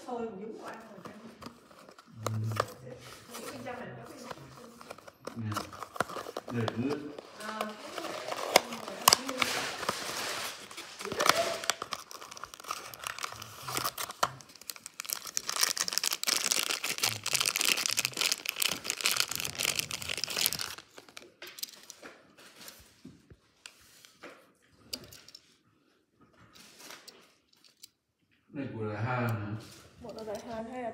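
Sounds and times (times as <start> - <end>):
plastic bag crinkling: 1.0 - 22.8
cardboard box tearing: 3.3 - 21.2.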